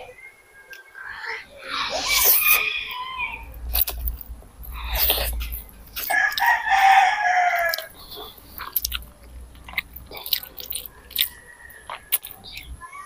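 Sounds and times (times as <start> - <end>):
eating clicks: 1.7 - 6.9, 7.5 - 12.8
rooster crowing: 2.0 - 3.6, 6.1 - 8.0, 11.0 - 12.2.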